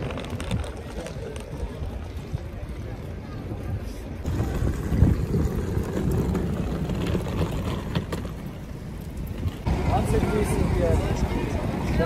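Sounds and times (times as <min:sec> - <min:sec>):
suitcase wheels rolling on pavement: 0:00.0 - 0:12.0.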